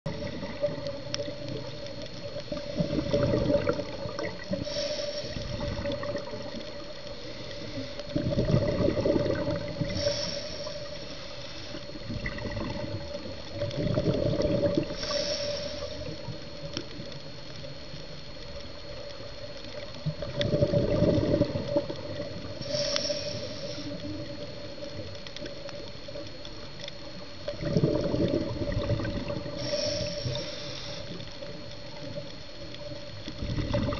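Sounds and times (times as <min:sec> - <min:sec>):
exhaled bubbles rushing: 0:00.1 - 0:01.7, 0:02.5 - 0:04.6, 0:05.4 - 0:06.9, 0:08.1 - 0:10.0, 0:12.0 - 0:15.0, 0:19.7 - 0:22.6, 0:27.4 - 0:29.6, 0:33.2 - 0:33.9
regulator inhale hiss: 0:00.1 - 0:13.7, 0:14.3 - 0:17.2, 0:21.2 - 0:26.3, 0:28.4 - 0:33.4.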